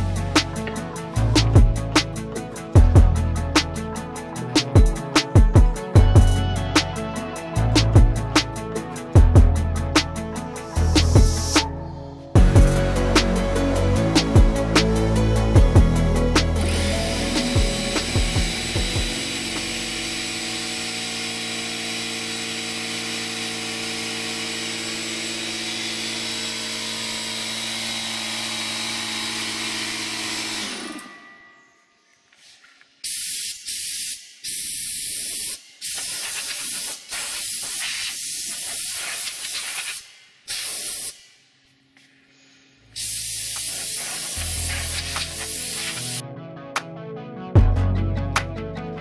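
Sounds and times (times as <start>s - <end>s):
air compressor running: 12.4s - 31.3s, 43.0s - 46.2s
compressed air blasts from blow gun: 33.0s - 41.4s, 43.0s - 46.2s.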